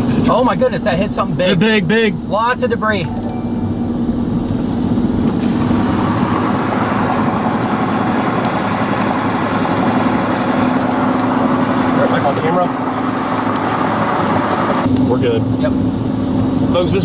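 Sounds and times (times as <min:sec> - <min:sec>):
car engine hum: 0:00.0 - 0:17.0
road and wind noise: 0:00.0 - 0:17.0.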